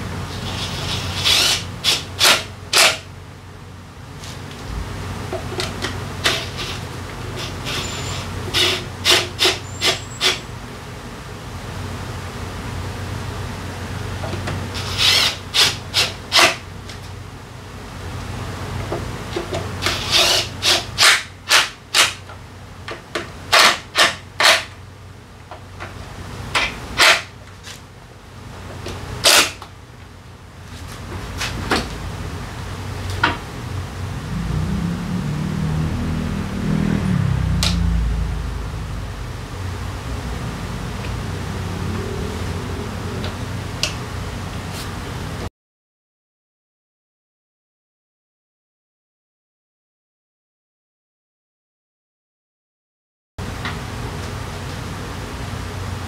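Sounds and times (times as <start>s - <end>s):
impact wrench bursts: 0.4s - 3.0s, 14.8s - 16.6s
cordless power tool driving bolts: 0.6s - 3.0s.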